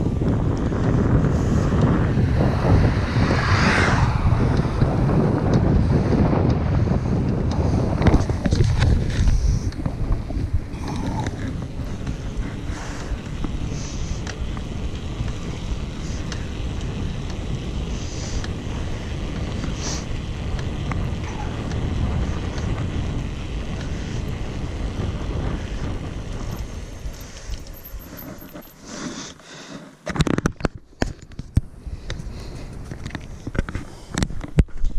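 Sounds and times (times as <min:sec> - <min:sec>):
wind buffeting microphone: 0:00.0 - 0:28.8
camera handling knocks and rustles: 0:30.0 - 0:31.6.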